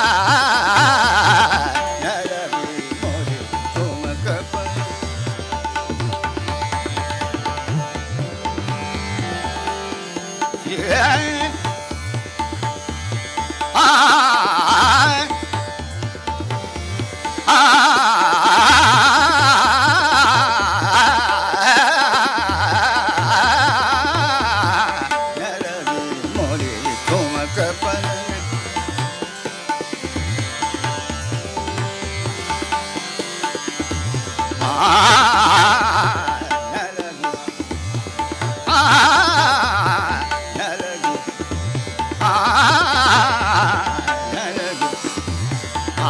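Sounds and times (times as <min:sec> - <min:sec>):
person singing: 0:00.0 - 0:05.5, 0:10.6 - 0:11.9, 0:13.7 - 0:15.6, 0:17.4 - 0:29.1, 0:34.4 - 0:37.7, 0:38.4 - 0:46.0
tabla strokes: 0:00.0 - 0:46.0
tanpura drone: 0:00.0 - 0:46.0.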